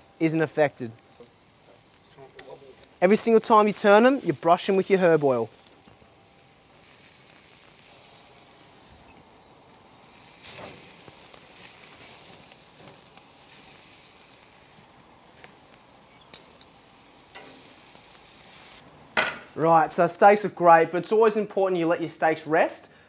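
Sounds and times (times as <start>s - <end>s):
steaks sizzling on grill: 0.0s - 21.2s
metal tongs clicking and scraping: 16.2s - 17.6s.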